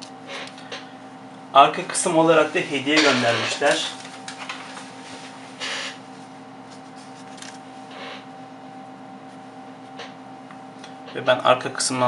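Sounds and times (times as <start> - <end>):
low electrical hum: 0.0 - 12.0
protector film peeling: 6.7 - 7.6.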